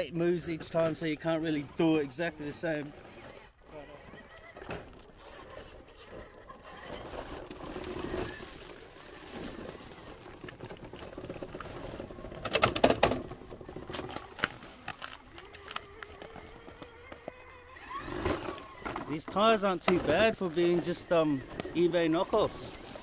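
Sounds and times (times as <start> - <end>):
electric motor whine: 0.0 - 23.0
tyres scraping over rock: 6.7 - 23.0.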